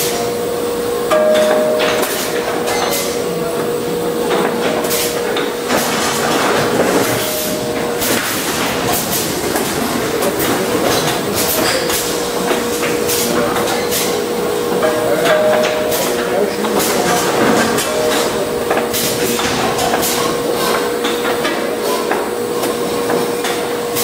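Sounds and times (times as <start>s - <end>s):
steady machine hum: 0.0s - 24.0s
packing machine clicking and knocking: 4.3s - 14.2s.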